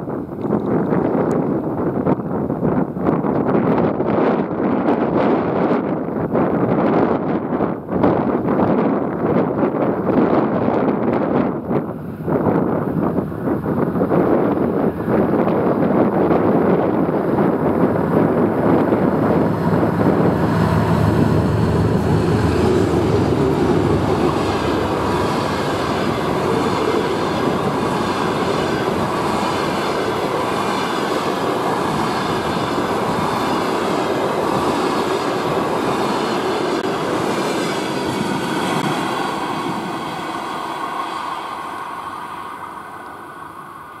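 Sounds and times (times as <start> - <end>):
diesel locomotive engines: 0.0 - 44.0
high-pitched whine: 17.4 - 44.0.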